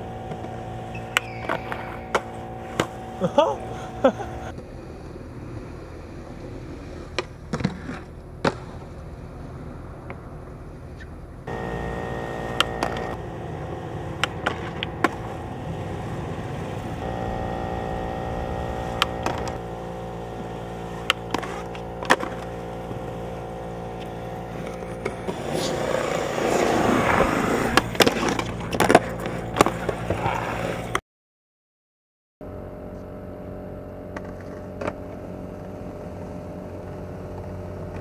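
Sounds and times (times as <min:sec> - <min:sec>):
skateboard clacks: 0:00.0 - 0:05.2, 0:06.3 - 0:09.4, 0:11.0 - 0:17.1, 0:18.7 - 0:31.0
skateboard wheels rolling on concrete: 0:00.0 - 0:31.0, 0:32.8 - 0:38.0
steady hum: 0:00.0 - 0:31.0, 0:32.4 - 0:38.0.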